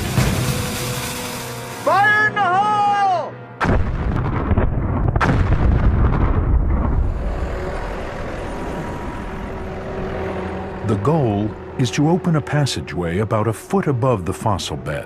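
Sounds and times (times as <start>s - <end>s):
blasting charge bang: 0.0s - 1.8s, 3.6s - 7.3s.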